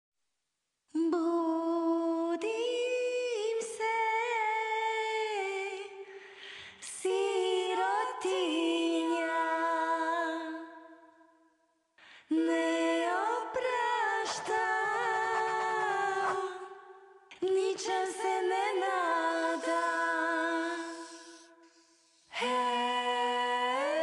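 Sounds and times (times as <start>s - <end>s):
woman singing wordless notes: 12.3s - 21.3s.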